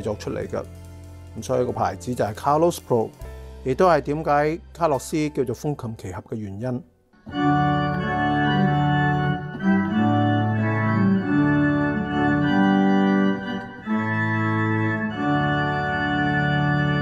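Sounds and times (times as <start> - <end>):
pipe organ playing sustained chords: 7.2 - 17.0.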